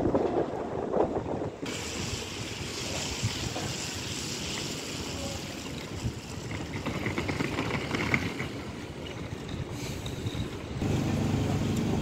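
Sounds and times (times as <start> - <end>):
wind rumbling on microphone: 0.0 - 10.9
rain hissing on wet street: 1.6 - 6.8.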